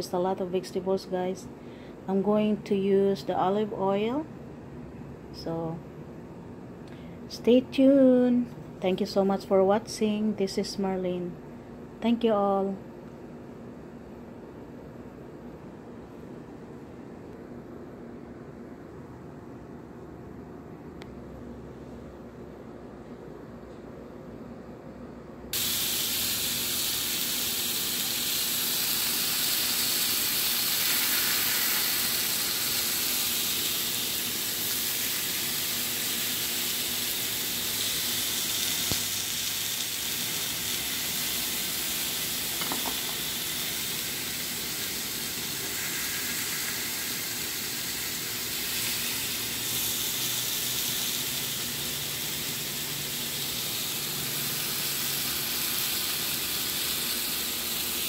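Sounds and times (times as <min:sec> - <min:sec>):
steak sizzling in a grill pan: 0:25.6 - 0:58.0.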